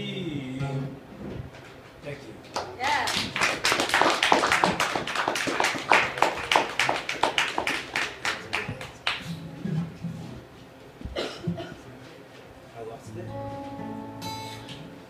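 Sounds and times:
audience applauding: 2.6s - 9.4s.

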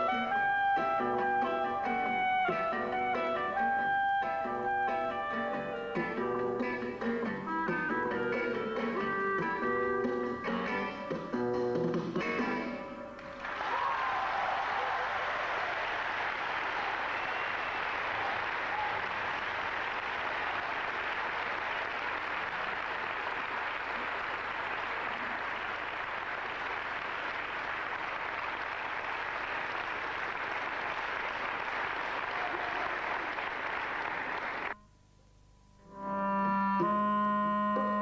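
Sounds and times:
audience applauding: 13.2s - 34.8s.

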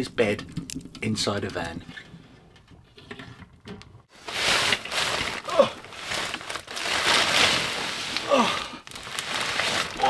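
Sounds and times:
plastic bag and duvet rustling: 4.1s - 10.0s.

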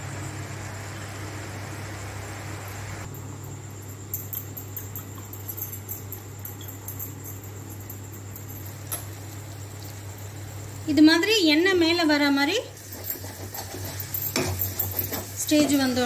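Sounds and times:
gravy sizzling: 9.0s - 16.0s.

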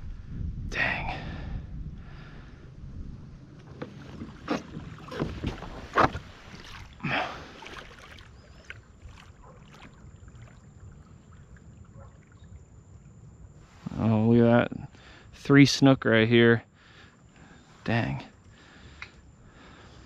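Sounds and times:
water splashing: 3.8s - 13.2s
water lapping: 3.8s - 13.8s.

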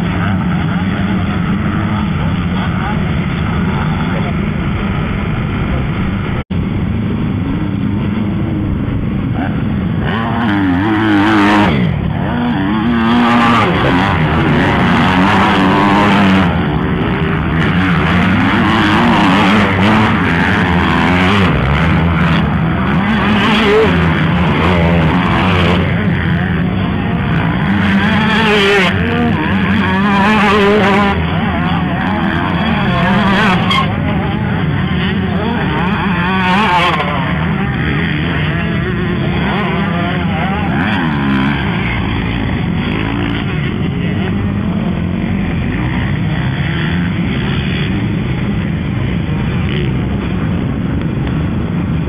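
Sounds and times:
motocross bikes revving past: 0.0s - 52.0s.

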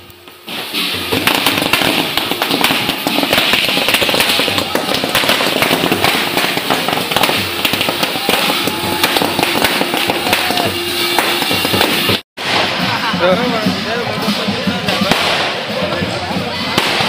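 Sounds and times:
firework fountain hissing: 0.0s - 17.0s
rapid crackling pops: 0.3s - 12.8s.

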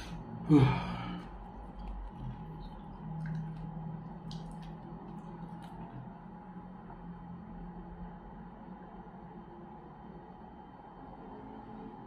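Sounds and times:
wet mouth clicks: 1.8s - 6.1s.

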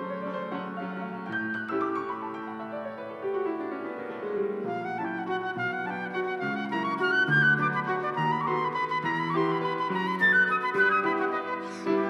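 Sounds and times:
musical accompaniment: 0.0s - 12.0s
flute playing slow melody: 4.7s - 12.0s.

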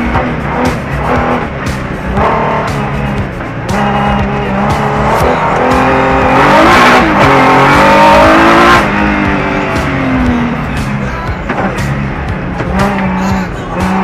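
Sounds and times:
racing car engine revving: 0.0s - 14.0s.

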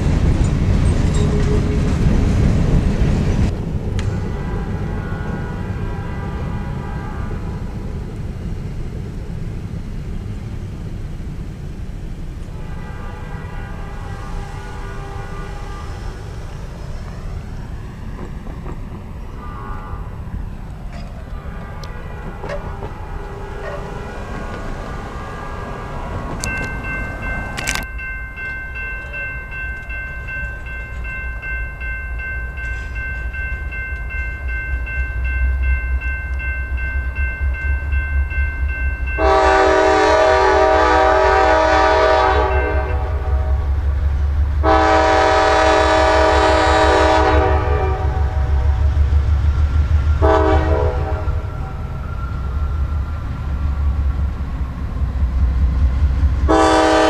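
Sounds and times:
diesel engines rumbling: 0.0s - 57.0s
locomotive air horn blasts: 4.1s - 7.6s, 12.5s - 16.4s, 19.3s - 20.3s, 21.3s - 26.5s, 39.2s - 43.8s, 44.6s - 48.9s, 50.2s - 51.7s, 56.5s - 57.0s
faint steady horn chord: 4.2s - 7.6s, 12.6s - 16.2s, 21.3s - 24.2s, 39.2s - 43.7s, 44.6s - 48.4s, 50.2s - 51.3s, 56.5s - 57.0s.

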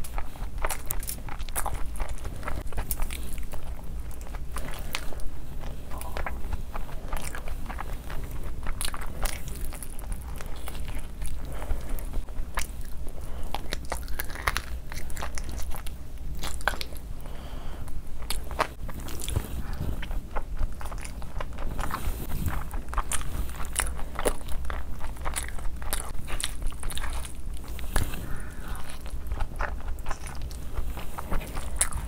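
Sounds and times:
person chewing crunchy food: 0.0s - 32.0s.

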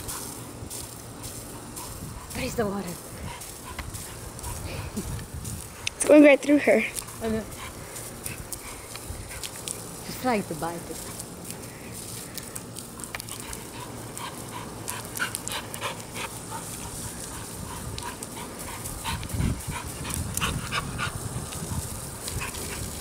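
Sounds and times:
garden hose water hissing: 0.0s - 23.0s
dog panting: 1.5s - 5.9s, 6.8s - 9.9s, 12.8s - 23.0s.

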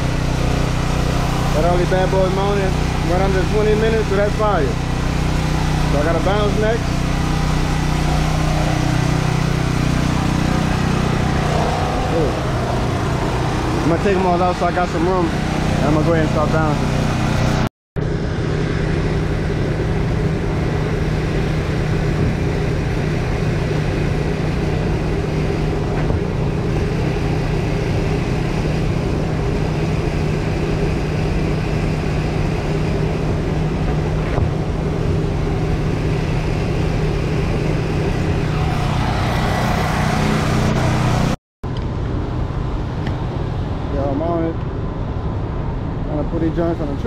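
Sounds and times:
engine humming: 0.0s - 47.0s
rushing noise: 4.7s - 29.6s, 32.9s - 41.4s.

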